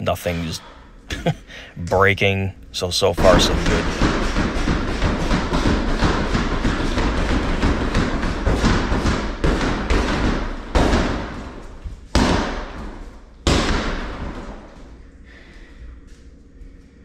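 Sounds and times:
gloved punches on heavy bag: 0:03.4 - 0:14.7.

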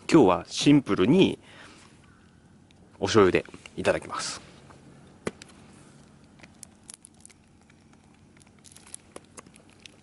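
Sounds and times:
tofu crackling on charcoal grill: 0:05.4 - 0:10.0.

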